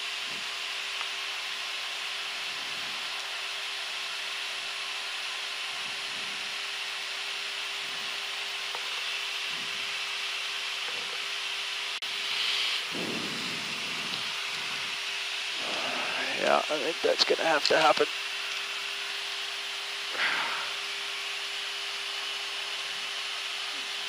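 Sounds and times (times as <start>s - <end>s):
faint steady hum: 12.0s - 24.0s
rushing air hiss: 12.1s - 16.5s, 20.1s - 21.4s.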